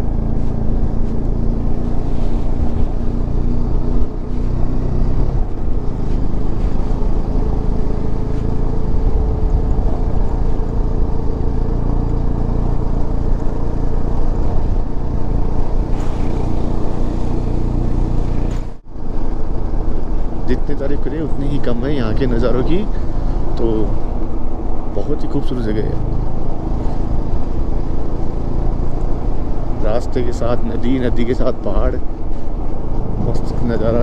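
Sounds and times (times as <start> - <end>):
motorcycle engine running: 0.0 - 18.8.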